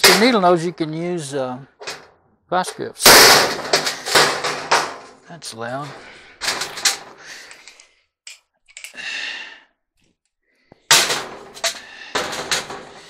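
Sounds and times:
metal clanking: 1.8s - 5.2s, 5.8s - 7.2s, 10.9s - 13.0s
loud metal bang: 3.0s - 5.1s, 10.9s - 13.0s.

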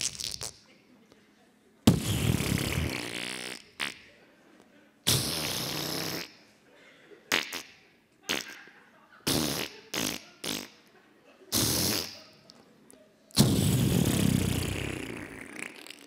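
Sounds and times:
spluttering mouth noises: 0.0s - 0.6s, 1.9s - 4.1s, 5.1s - 6.4s, 7.3s - 8.6s, 9.3s - 10.8s, 11.5s - 12.6s, 13.4s - 16.0s.

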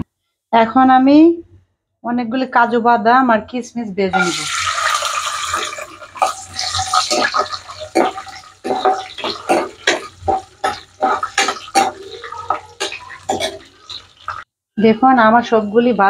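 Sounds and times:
nuts sizzling in hot oil: 4.2s - 14.4s
steel spoon scraping a pan: 4.9s - 14.4s.

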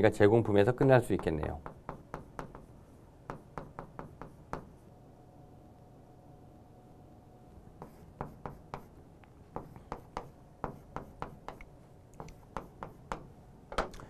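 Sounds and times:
chalk tapping on a chalkboard: 0.4s - 4.8s, 7.8s - 13.3s.

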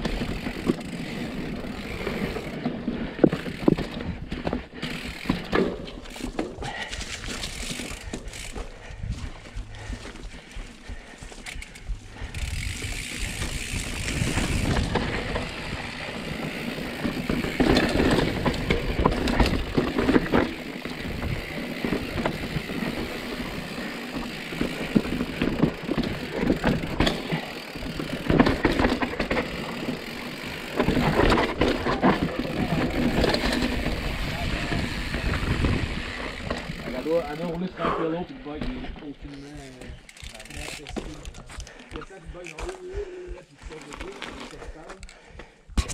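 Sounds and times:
bike tyres rolling over rock: 0.0s - 45.0s
wind buffeting microphone: 8.7s - 16.1s, 21.0s - 22.7s, 33.8s - 36.8s.

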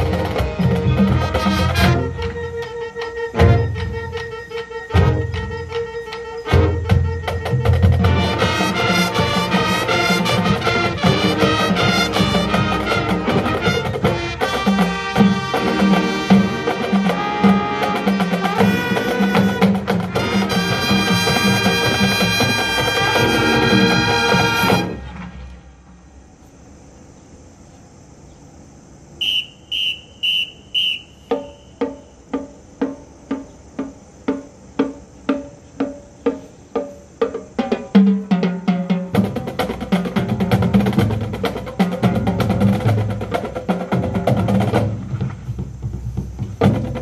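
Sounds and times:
marching band playing: 0.0s - 25.4s, 29.2s - 47.0s
faint high whine: 15.3s - 36.6s.

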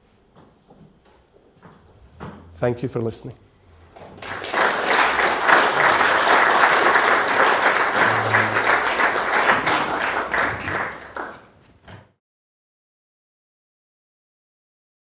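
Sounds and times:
audience applauding: 3.9s - 11.6s.

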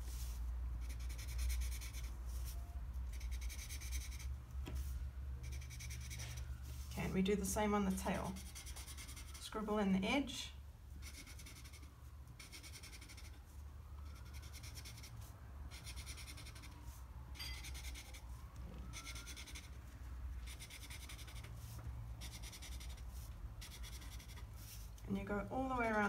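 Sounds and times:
marker scribbling on paper: 0.8s - 2.2s, 3.1s - 4.3s, 5.4s - 6.4s, 8.4s - 9.4s, 11.0s - 13.4s, 20.4s - 24.9s.

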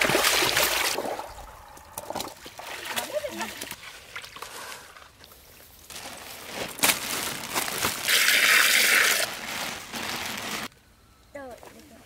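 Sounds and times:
water pouring: 0.0s - 4.4s
water splashing and gushing: 0.0s - 4.7s, 7.9s - 9.9s.

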